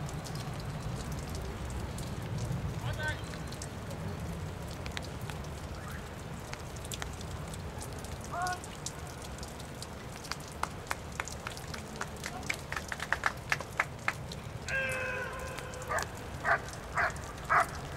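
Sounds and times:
raindrops ticking on umbrella: 0.0 - 17.9
short pitched cry: 14.7 - 16.0.

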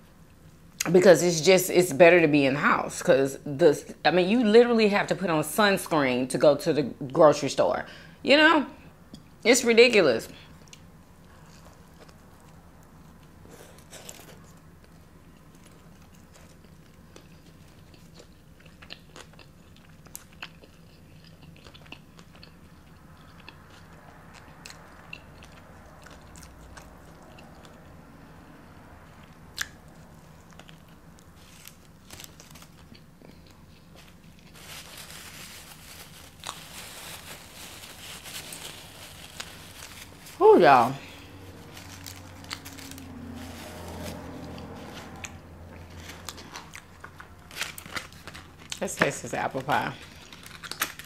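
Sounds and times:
chewing crunchy food: 10.4 - 28.0, 29.1 - 40.4, 41.0 - 48.8, 50.0 - 51.0
crackling: 29.6 - 51.0.

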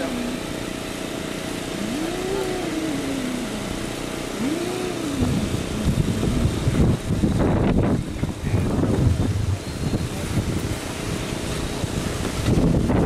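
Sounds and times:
wind buffeting microphone: 4.5 - 13.0.

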